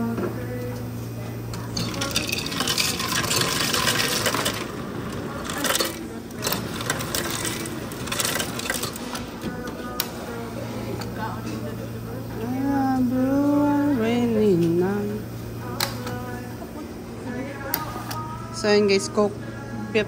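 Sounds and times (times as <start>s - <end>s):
ice cubes clattering into plastic cup: 1.8s - 4.7s.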